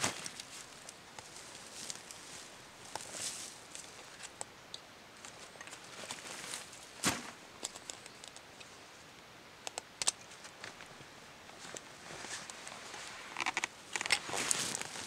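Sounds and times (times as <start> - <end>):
backpack rustling: 11.6 - 15.0.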